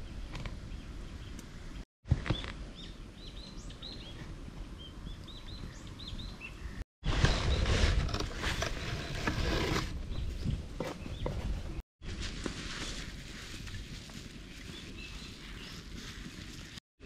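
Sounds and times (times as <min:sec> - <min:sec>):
small birds chirping: 0:00.0 - 0:07.6, 0:14.4 - 0:16.8.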